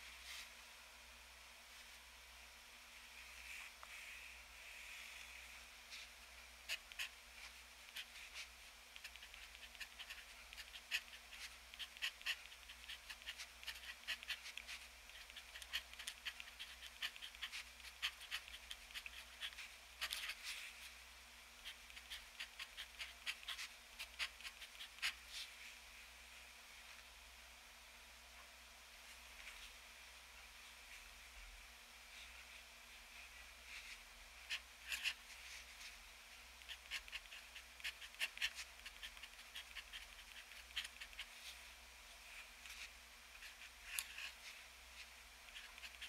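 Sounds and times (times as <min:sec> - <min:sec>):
fountain pen scratching paper: 0:06.7 - 0:07.2, 0:07.9 - 0:20.5, 0:21.6 - 0:25.2, 0:34.4 - 0:35.3, 0:36.6 - 0:41.3, 0:45.5 - 0:46.0.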